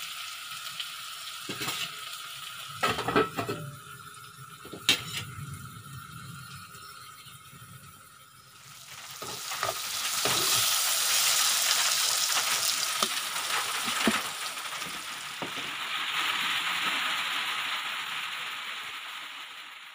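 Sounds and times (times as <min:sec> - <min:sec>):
vegetables sizzling in frying pan: 0:00.0 - 0:19.9
ladle clinking and scraping: 0:01.5 - 0:02.0, 0:02.7 - 0:03.8, 0:04.6 - 0:05.5.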